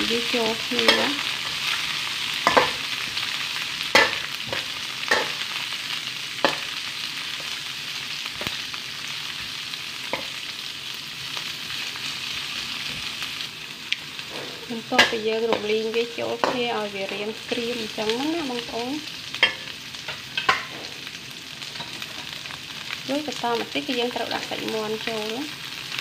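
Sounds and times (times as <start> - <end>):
food sizzling in hot oil: 0.0 - 26.0
metal spatula scraping wok: 14.2 - 16.9.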